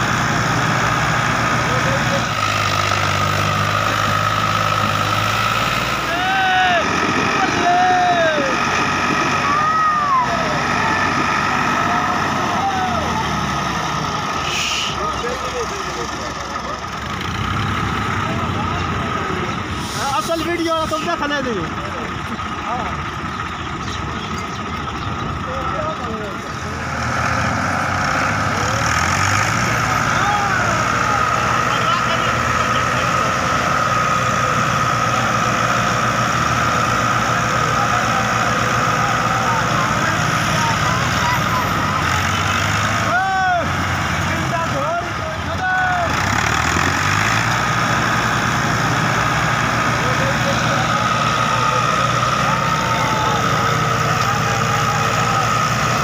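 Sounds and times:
tractor engines under heavy load: 0.0s - 56.0s.

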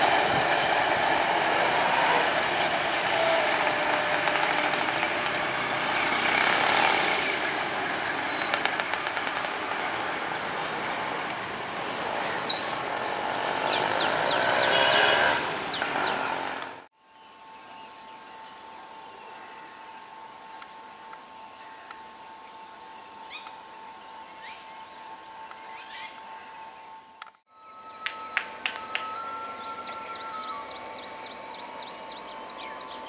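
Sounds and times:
train wheels squealing on rails: 0.0s - 16.9s, 27.5s - 32.8s.

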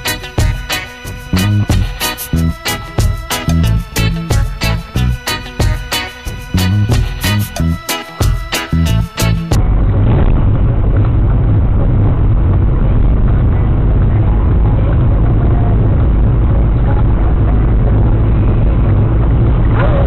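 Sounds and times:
car road and engine rumble: 9.5s - 20.0s.

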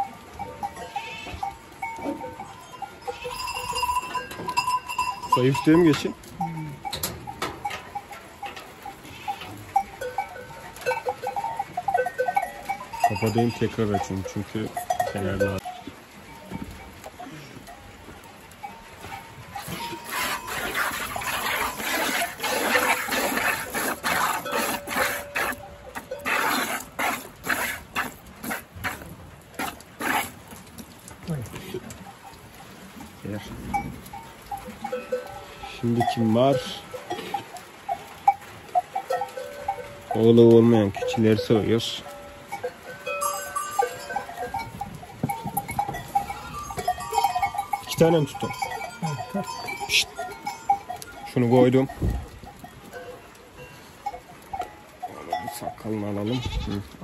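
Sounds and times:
short ringing clinks: 1.8s - 8.0s
goats knocking and scuffing: 3.4s - 33.2s, 36.6s - 53.4s.

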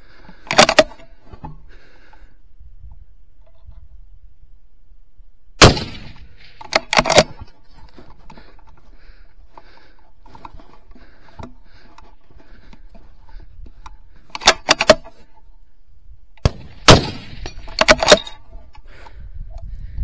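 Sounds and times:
rifle action clicking: 0.3s - 1.1s, 5.6s - 7.6s, 13.8s - 15.2s, 16.4s - 19.7s
rifle shot: 5.6s - 7.4s, 16.4s - 18.2s.

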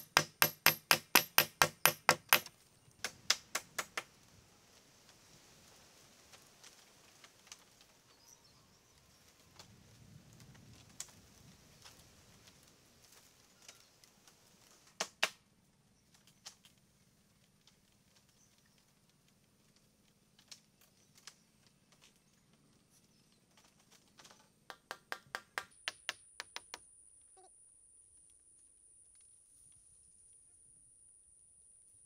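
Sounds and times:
sharp taps and knocks: 0.0s - 4.1s, 24.2s - 26.8s.

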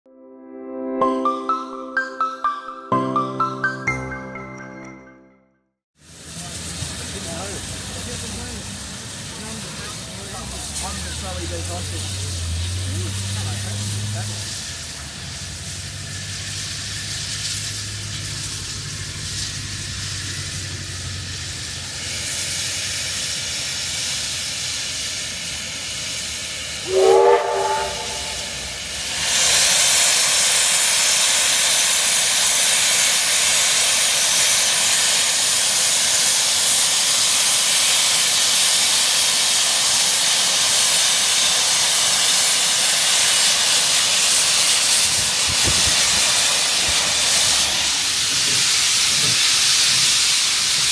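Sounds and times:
loud rush of steam: 6.0s - 50.9s
steam locomotive hissing: 6.0s - 50.9s
steam whistle blast: 26.8s - 30.2s.

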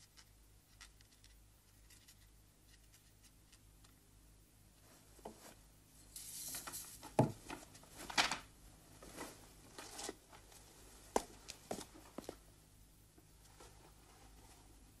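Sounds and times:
paper rustling: 6.2s - 10.6s.

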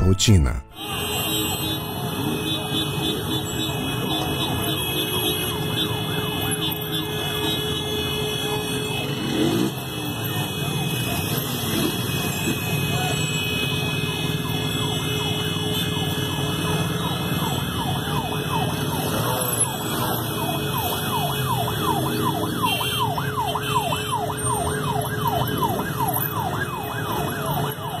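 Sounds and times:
police siren wailing and yelping: 14.2s - 28.0s.

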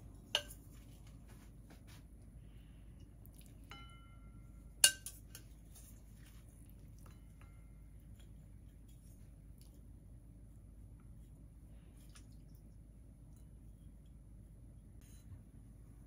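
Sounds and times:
utensil clinking on ceramic plate: 0.3s - 1.0s, 3.6s - 9.0s.

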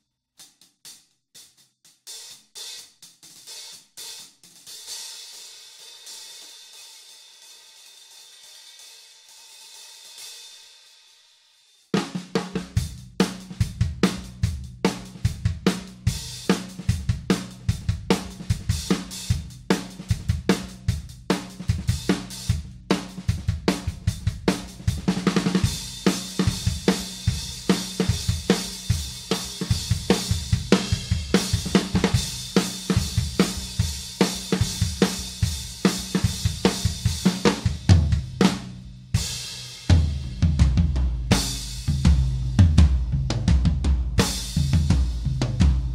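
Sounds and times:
snare drum: 11.9s - 45.9s.

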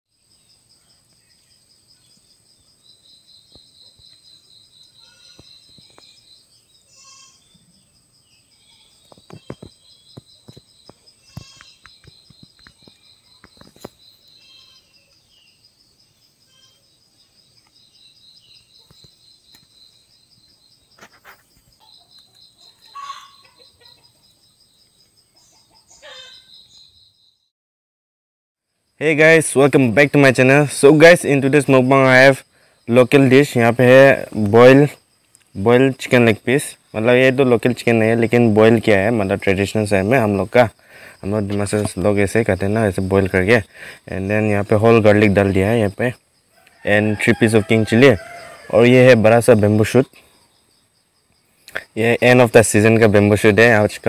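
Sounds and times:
insects trilling: 0.1s - 27.4s, 28.6s - 54.0s
bird calls: 0.3s - 27.5s.

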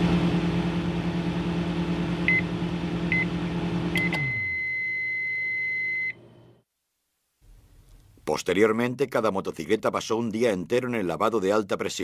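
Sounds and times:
machine electric hum: 0.0s - 4.6s
long beep: 4.0s - 6.2s.

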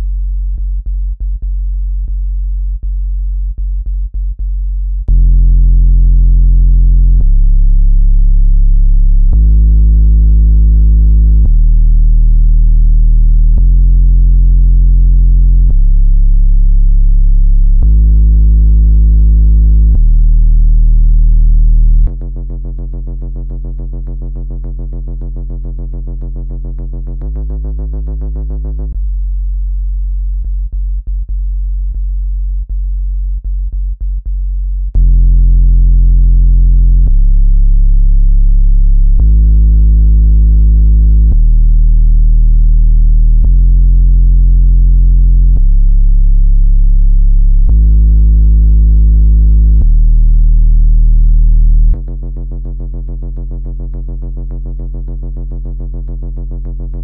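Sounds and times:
low hum: 0.0s - 54.1s
deep bass tones jumping in pitch: 0.0s - 57.0s
buzzy tone with overtones: 35.0s - 52.6s.

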